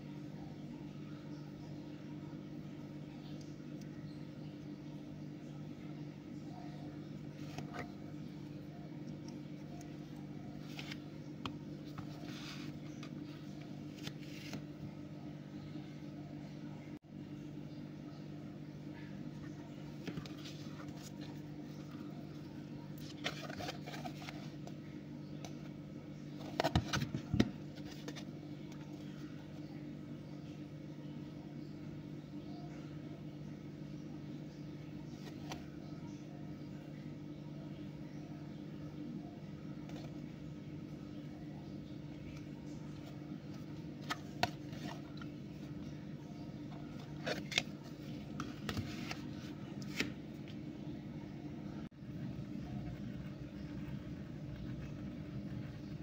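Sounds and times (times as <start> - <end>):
steady low hum: 0.0 - 56.0
paper card rustling: 11.9 - 14.7, 23.0 - 24.6, 47.0 - 50.2
cardboard scraping and rustling: 23.0 - 24.6.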